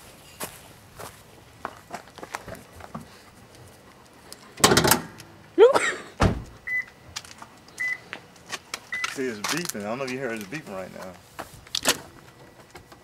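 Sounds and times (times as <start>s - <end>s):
car door shutting: 6.2s - 6.6s.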